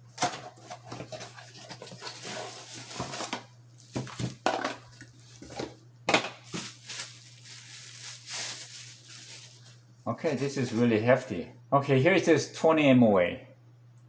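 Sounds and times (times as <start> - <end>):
cardboard and plastic rustling: 0.2 - 10.8.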